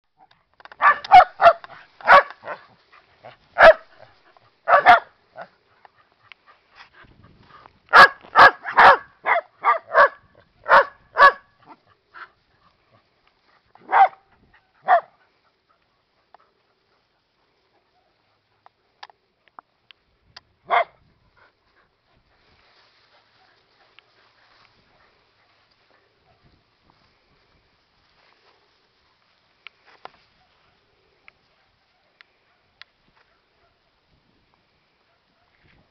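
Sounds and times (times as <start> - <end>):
dog barking: 0.8 - 2.7, 3.6 - 5.5, 7.9 - 11.8, 13.8 - 14.2, 14.8 - 15.2, 20.7 - 21.0, 30.4 - 30.8, 31.5 - 33.9, 35.1 - 35.9.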